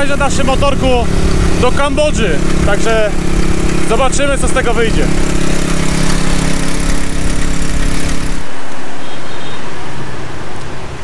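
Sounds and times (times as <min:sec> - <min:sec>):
small motorbike engine running: 0:00.0 - 0:08.5.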